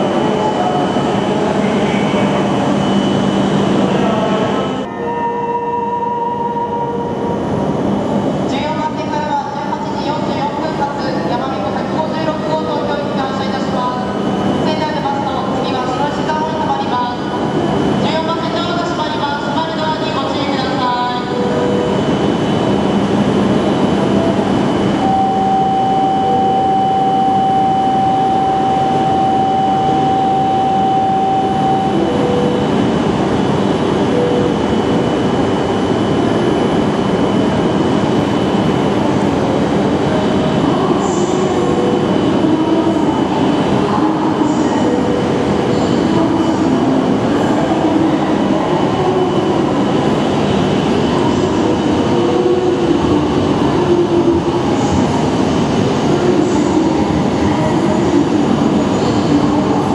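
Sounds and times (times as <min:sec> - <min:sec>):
wavering whine: 0:20.9 - 0:59.9
held tone: 0:25.0 - 0:32.8.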